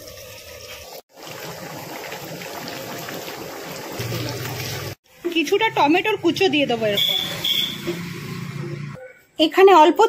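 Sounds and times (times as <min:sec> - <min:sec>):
water trickling and splashing: 0:00.0 - 0:05.0.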